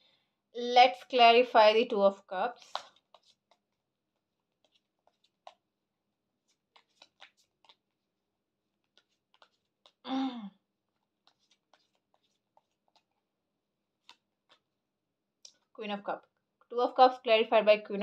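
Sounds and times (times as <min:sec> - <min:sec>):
cards being shuffled: 0:02.5 - 0:03.7, 0:04.4 - 0:05.6, 0:06.4 - 0:08.0, 0:08.8 - 0:10.0, 0:11.2 - 0:13.2, 0:14.0 - 0:14.7.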